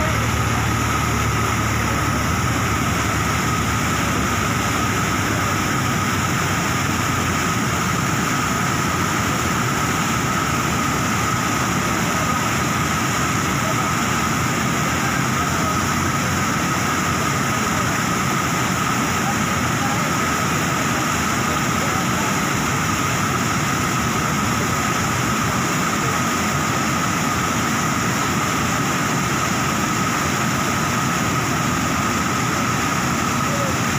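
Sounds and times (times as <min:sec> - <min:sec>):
water rushing over weir: 0:00.0 - 0:33.9.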